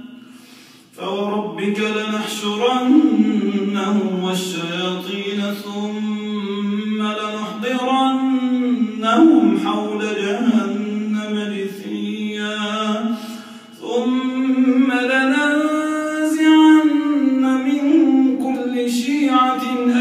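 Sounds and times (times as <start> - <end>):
man chanting through a microphone: 1.0 - 20.0.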